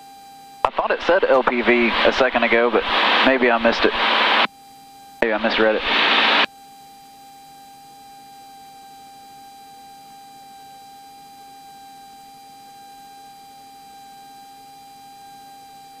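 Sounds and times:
high electronic whine: 0.7s - 4.5s, 5.2s - 6.5s
low hiss: 0.7s - 4.5s, 5.4s - 6.5s.

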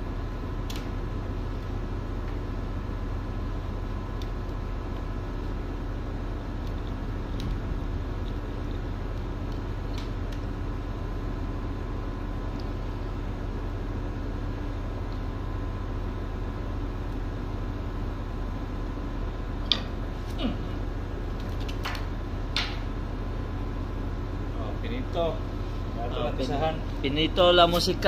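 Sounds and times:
steady hum tones: 0.0s - 28.0s.

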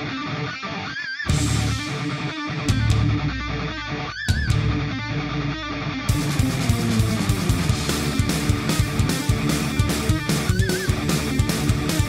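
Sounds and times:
guitar rock music: 0.0s - 12.0s
steady drum beat: 1.3s - 4.9s, 6.1s - 12.0s.

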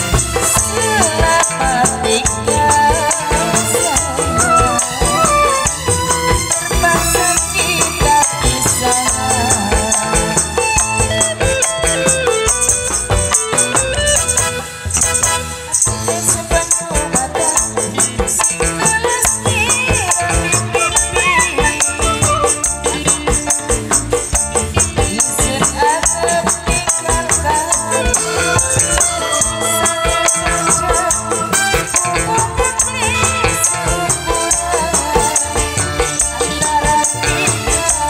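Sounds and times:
gliding melody line: 0.0s - 16.5s
band music: 0.0s - 38.0s.

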